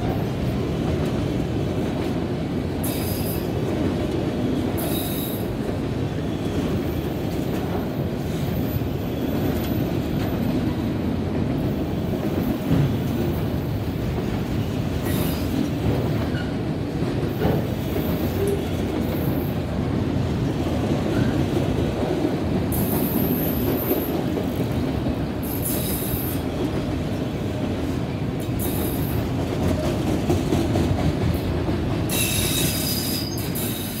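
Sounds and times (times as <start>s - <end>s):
freight train rolling past: 0.0s - 34.0s
high wheel squeal: 32.1s - 34.0s.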